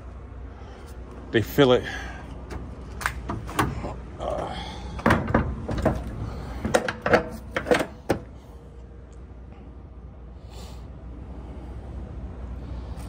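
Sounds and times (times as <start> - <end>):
steady low rumble: 0.0 - 13.0
metal door clanks and knocks: 5.0 - 8.2.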